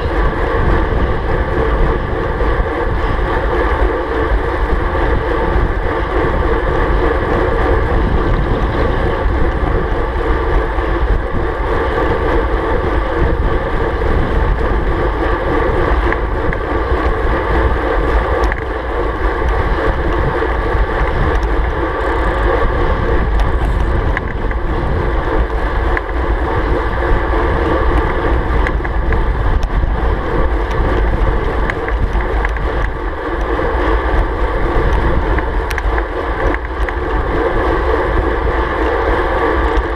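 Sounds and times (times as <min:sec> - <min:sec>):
wind buffeting microphone: 0:00.0 - 0:39.9.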